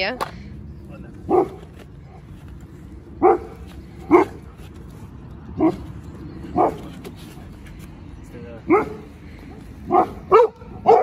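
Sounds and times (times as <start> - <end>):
dog barking: 1.3 - 1.6, 3.2 - 4.4, 6.6 - 6.8, 8.7 - 9.1, 9.9 - 11.0.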